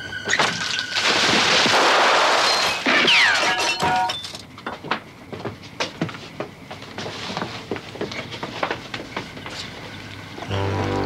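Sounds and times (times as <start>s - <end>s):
mirror glass shattering: 1.8s - 4.4s.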